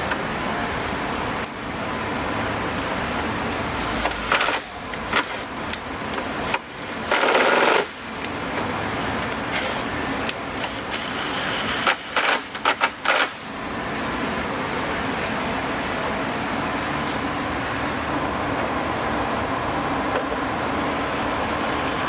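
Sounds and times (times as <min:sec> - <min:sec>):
impact driver rattling bursts: 0:06.4 - 0:08.0, 0:11.6 - 0:13.4.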